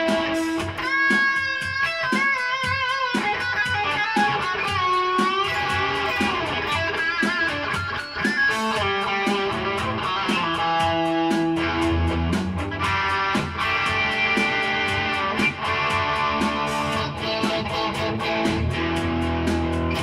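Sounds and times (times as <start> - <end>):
electric guitar lead: 0.0 - 20.0
steady beat: 0.0 - 20.0.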